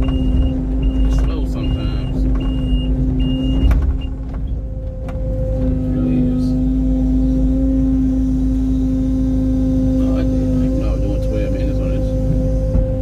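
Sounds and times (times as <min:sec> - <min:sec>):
high beeps: 0:00.0 - 0:04.2
excavator engine and hydraulics: 0:00.0 - 0:13.0.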